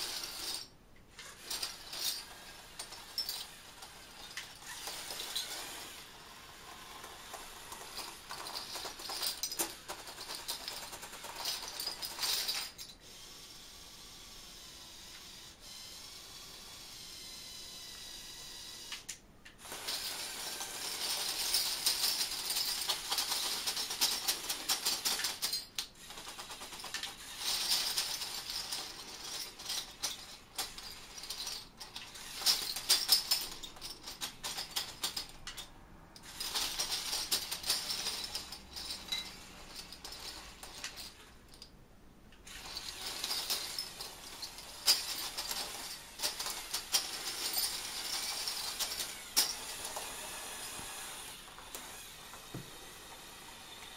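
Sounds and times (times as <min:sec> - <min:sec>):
toy bulldozer motor grinding: 0:00.0 - 0:41.1, 0:42.5 - 0:53.9
plastic gears whirring: 0:00.0 - 0:41.3, 0:42.4 - 0:53.9
metal bottle caps clattering: 0:01.3 - 0:03.5, 0:07.8 - 0:13.0, 0:26.7 - 0:41.7, 0:42.5 - 0:50.1.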